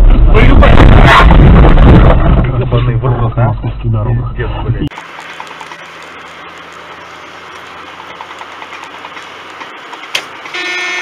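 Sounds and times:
car road and engine noise: 0:00.0 - 0:11.0
car horn: 0:10.5 - 0:11.0.

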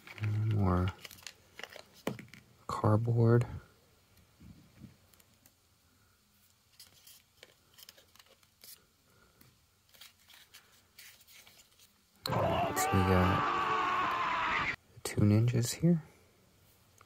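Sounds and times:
faint handling clicks and scrapes: 0:06.4 - 0:12.0.

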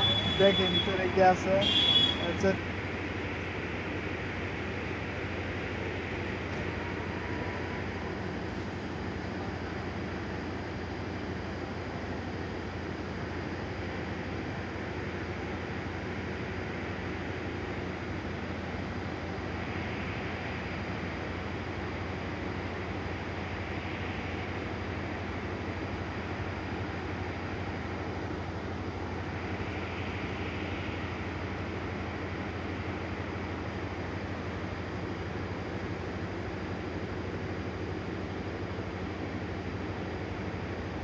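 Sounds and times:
thin high whine: 0:00.0 - 0:02.6
low machinery drone: 0:00.0 - 0:41.0.

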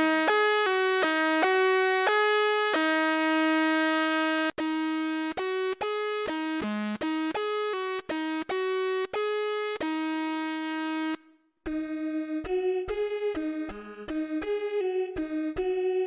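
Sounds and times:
synthesizer lead melody: 0:00.0 - 0:16.0.

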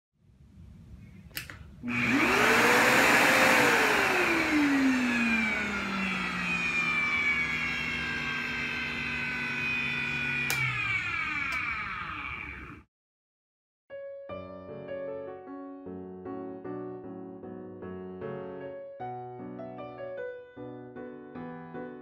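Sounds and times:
switch click: 0:01.3 - 0:01.6, 0:10.5 - 0:10.7
vacuum cleaner motor whine: 0:01.8 - 0:12.9.

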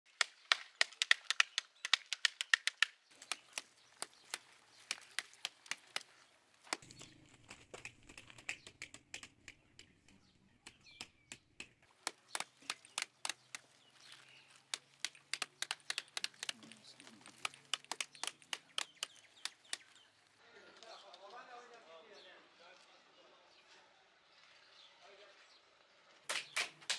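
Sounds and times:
fruit rinds crackling: 0:00.8 - 0:08.5, 0:11.8 - 0:20.4
plastic scoop tapping fruit halves: 0:10.7 - 0:20.1.

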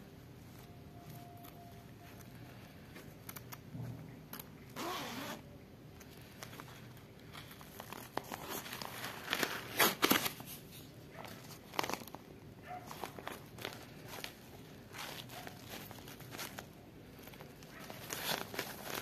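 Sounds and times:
zipper being pulled open: 0:04.8 - 0:05.4
fabric rustling: 0:06.0 - 0:19.0.

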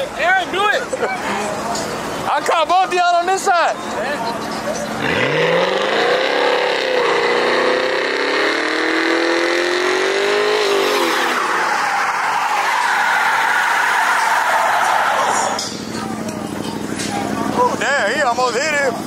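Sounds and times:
car engine revving hard: 0:04.9 - 0:13.2
tyres squealing: 0:10.6 - 0:17.4.

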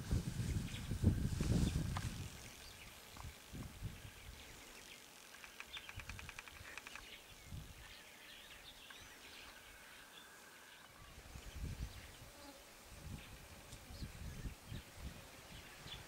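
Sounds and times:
rapid rattling bird trill: 0:02.2 - 0:07.4.

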